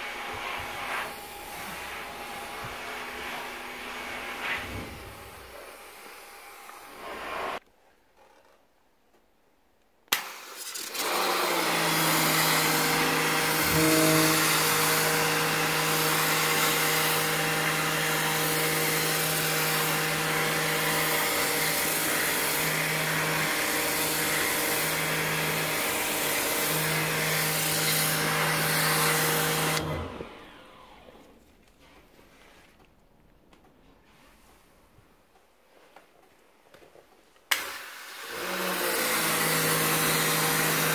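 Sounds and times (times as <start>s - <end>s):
pressure washer pump humming: 10.5s - 31.2s.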